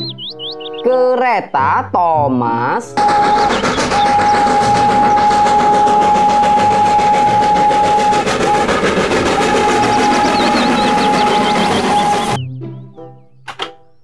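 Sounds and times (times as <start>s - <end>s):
steam locomotive chuffing: 3.0s - 12.4s
steam whistle: 3.0s - 12.4s.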